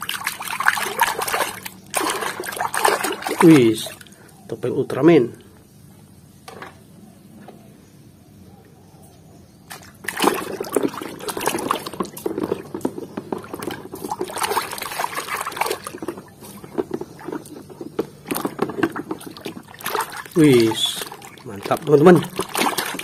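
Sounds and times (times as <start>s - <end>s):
hand scrubbing in soapy water: 0.0s - 4.1s, 10.0s - 23.0s
water splashing and sloshing: 0.0s - 4.4s, 9.7s - 23.0s.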